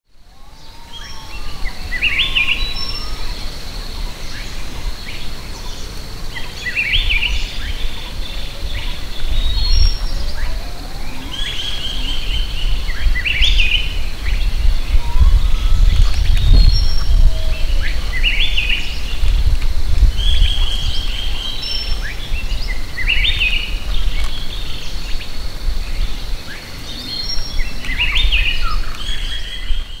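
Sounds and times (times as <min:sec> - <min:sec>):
forest birds chirping: 0:00.1 - 0:30.0
heavy low rumble: 0:07.5 - 0:23.0.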